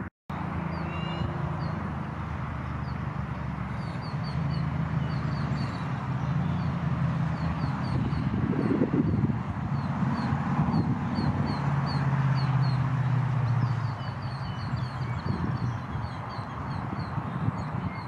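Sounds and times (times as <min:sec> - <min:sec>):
small songbirds chirping: 0:00.4 - 0:18.0.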